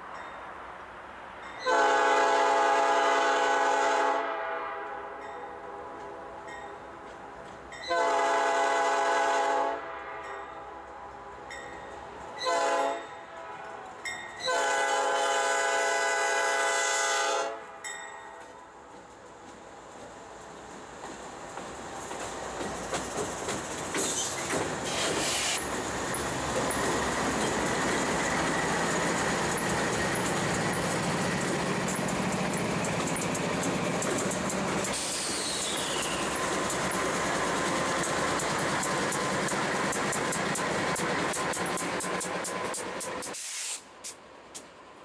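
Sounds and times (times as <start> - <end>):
diesel locomotive engines: 0.0 - 45.0
steel wheels rolling on rails: 18.4 - 43.4.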